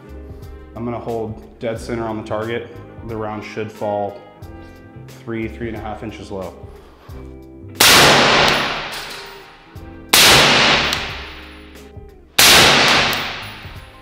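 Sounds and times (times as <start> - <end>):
rifle shots echoing indoors: 7.8 - 11.7, 12.4 - 14.0.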